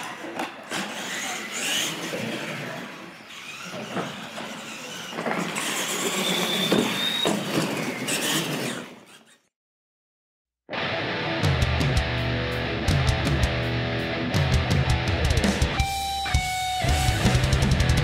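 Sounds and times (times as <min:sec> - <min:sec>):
toy truck motor whine: 0:00.7 - 0:09.5.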